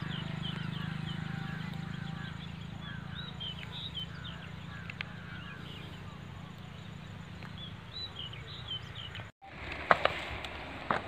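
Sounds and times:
small birds chirping: 0.0 - 9.4.

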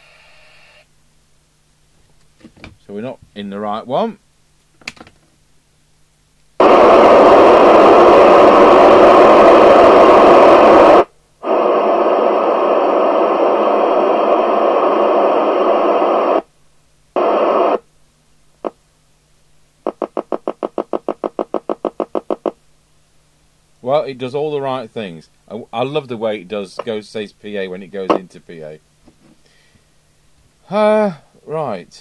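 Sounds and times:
radio static hiss: 0.0 - 0.9, 6.6 - 29.7, 30.6 - 32.0.

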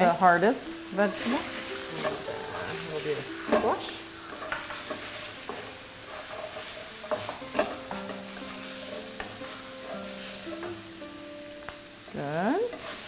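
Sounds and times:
wooden spatula scraping a wok: 0.0 - 11.0, 12.0 - 13.0
stir-fry sizzling in a wok: 0.0 - 13.0.

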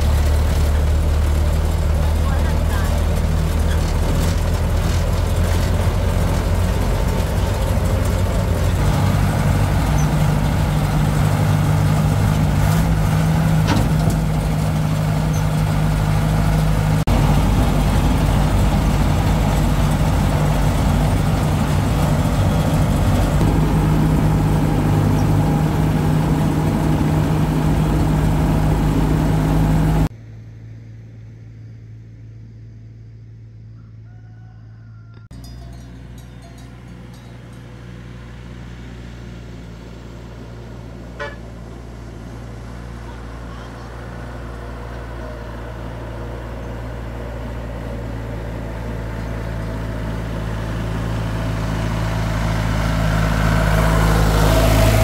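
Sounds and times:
truck engine running: 0.0 - 34.0, 35.0 - 55.0.

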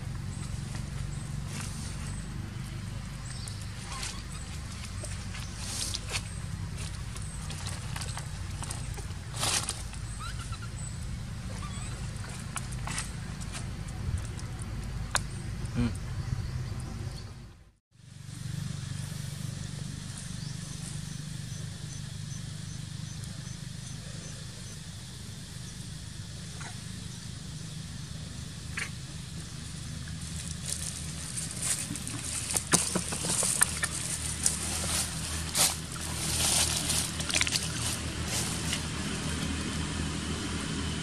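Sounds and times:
rustling in dry leaves: 0.0 - 14.8, 18.0 - 21.9, 29.2 - 41.0
steady low hum: 0.0 - 41.0.

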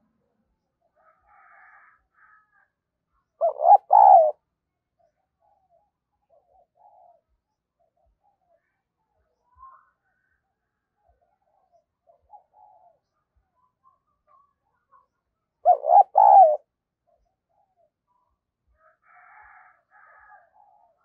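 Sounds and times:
dove cooing: 3.4 - 4.4, 6.3 - 7.2, 12.1 - 13.0, 15.6 - 16.7
faint bird calls: 3.4 - 4.4, 11.3 - 18.2.

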